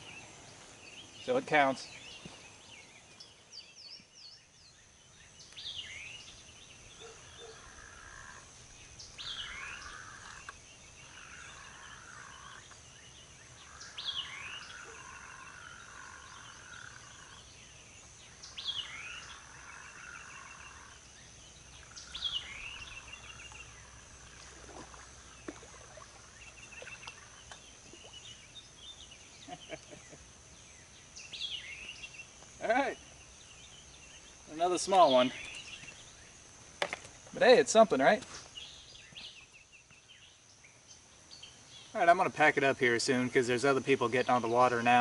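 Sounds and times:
bird singing: 0:00.0 - 0:45.0.

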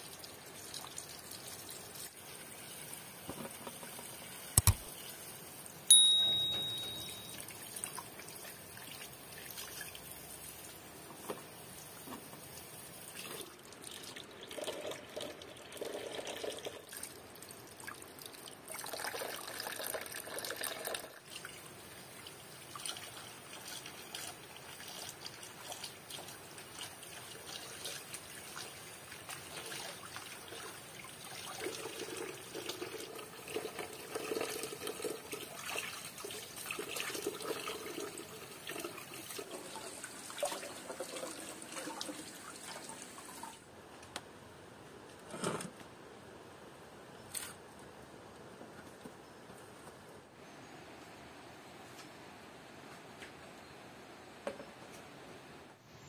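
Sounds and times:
sharp metallic clink: 0:05.9 - 0:07.4.

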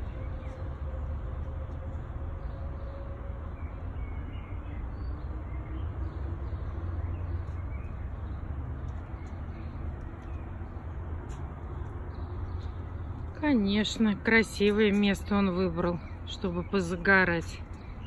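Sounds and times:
steady low rumble: 0:06.6 - 0:18.0.

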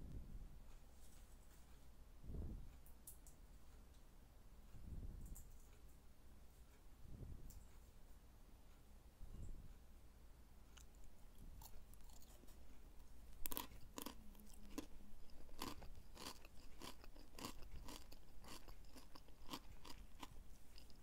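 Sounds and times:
crunchy noodles being chewed: 0:10.7 - 0:21.0.

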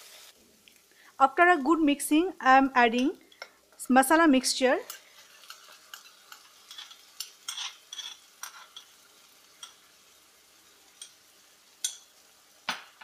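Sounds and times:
faint sizzle from a pan: 0:00.0 - 0:13.0
spoon scraping a bowl: 0:04.9 - 0:08.9.

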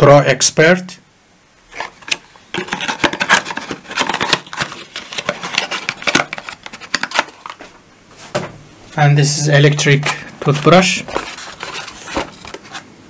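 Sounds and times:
packaging crackling: 0:01.7 - 0:07.7, 0:10.0 - 0:12.8.

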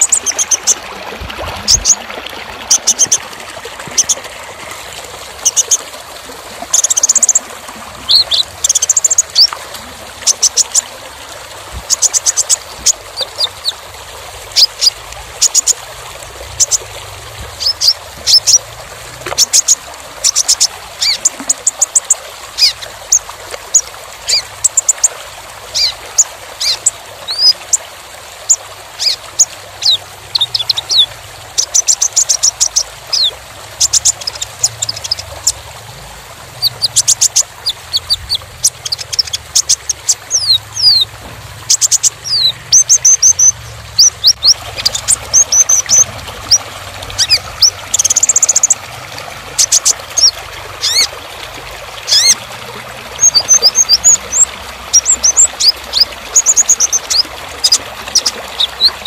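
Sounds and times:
bird singing high chirps: 0:36.6 - 0:41.1, 0:41.7 - 0:46.6.

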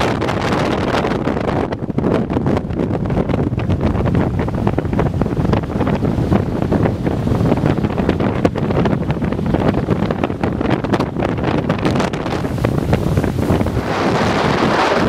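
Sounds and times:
strong wind buffeting microphone: 0:00.0 - 0:15.0
breaking surf: 0:03.6 - 0:15.0.

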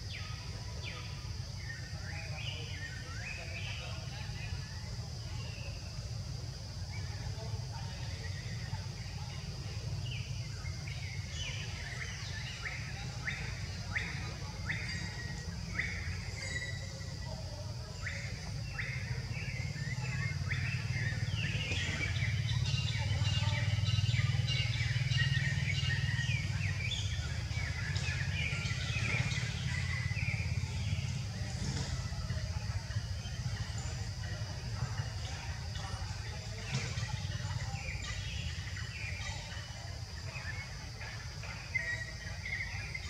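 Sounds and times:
high insect whine: 0:00.0 - 0:43.0
bird chirping calls: 0:10.1 - 0:43.0.

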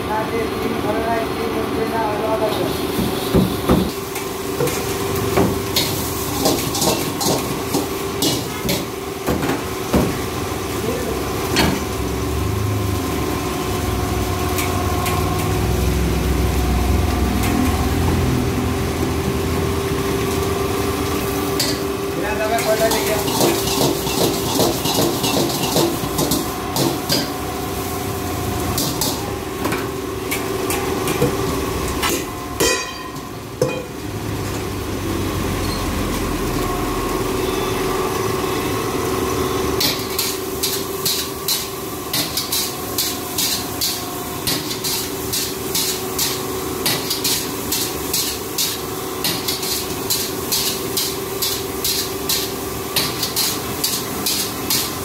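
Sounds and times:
food sizzling: 0:02.0 - 0:55.0
metal ladle clattering against wok: 0:32.6 - 0:33.9.

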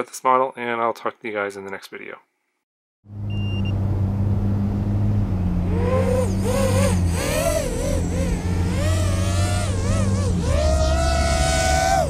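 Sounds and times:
short high beep: 0:03.3 - 0:03.8
drone motors whining: 0:04.5 - 0:12.0.

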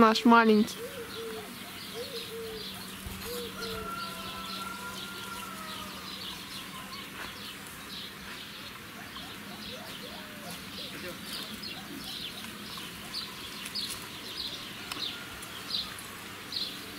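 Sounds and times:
small birds chirping: 0:00.0 - 0:16.9
low cooing calls: 0:00.6 - 0:16.9.

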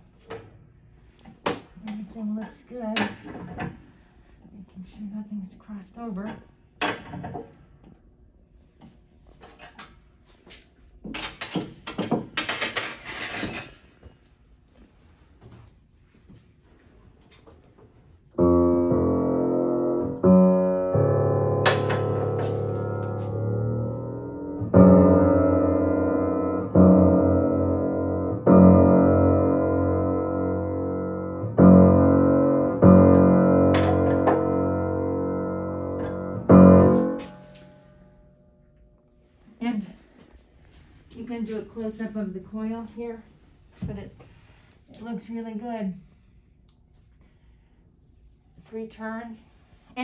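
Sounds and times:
piano strings ringing: 0:18.4 - 0:38.5.

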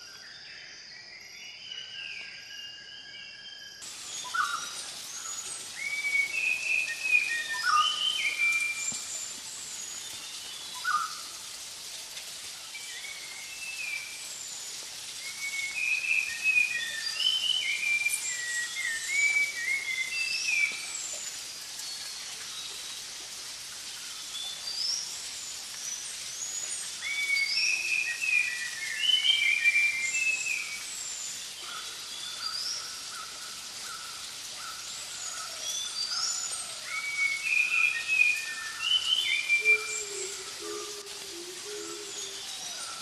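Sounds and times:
birds singing: 0:00.0 - 0:11.3, 0:25.9 - 0:43.0
steady hiss: 0:03.8 - 0:43.0.

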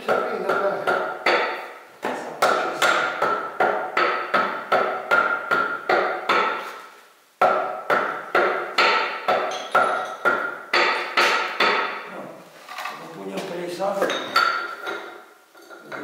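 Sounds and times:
hammer striking metal: 0:02.4 - 0:06.7, 0:07.4 - 0:12.1.

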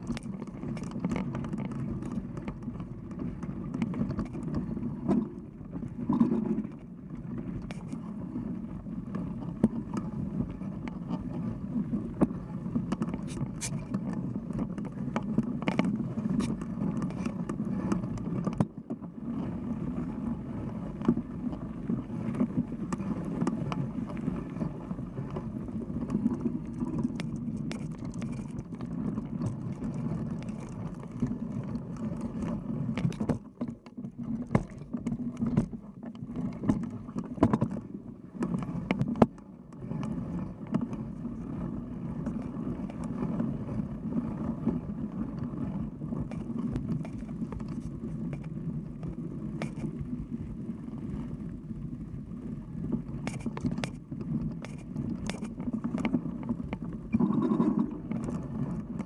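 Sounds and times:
knobby tyres rumbling on dirt: 0:00.0 - 0:59.0
bike clicks and rattles: 0:26.7 - 0:35.7
wind on microphone: 0:38.4 - 0:59.0.

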